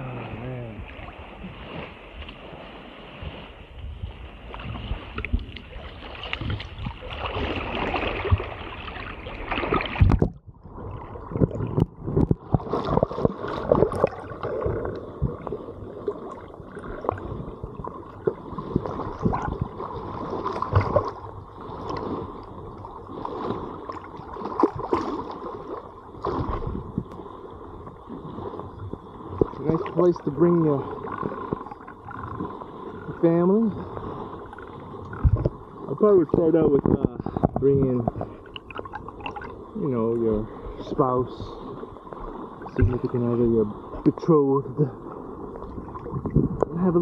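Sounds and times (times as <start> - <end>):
river water splashing: 0.0 - 47.0.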